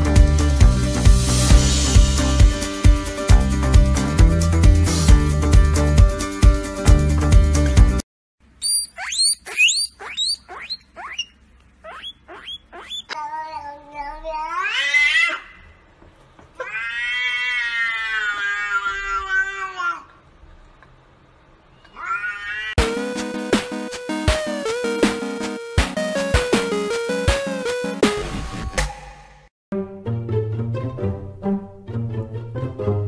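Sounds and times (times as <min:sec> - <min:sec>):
cat chirping: 0:08.6 - 0:13.2
cat meowing: 0:16.6 - 0:20.0, 0:21.9 - 0:22.8.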